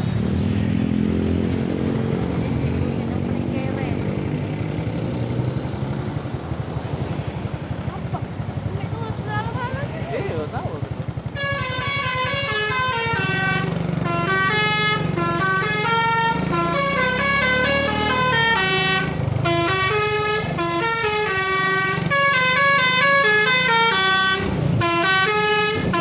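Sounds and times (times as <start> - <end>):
bus engine humming: 0.0 - 26.0
bus horn playing a melody: 11.2 - 26.0.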